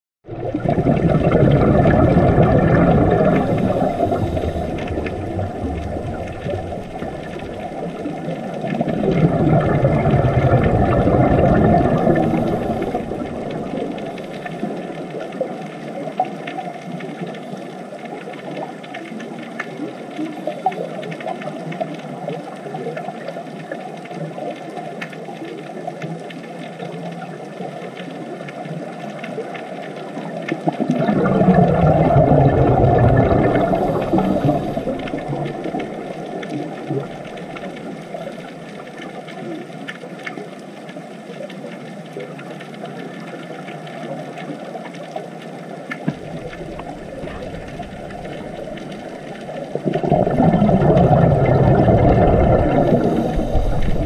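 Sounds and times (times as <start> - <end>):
regulator bubbling: 0.2 - 16.4, 30.6 - 39.6, 45.9 - 54.0
muffled underwater rush: 0.2 - 54.0.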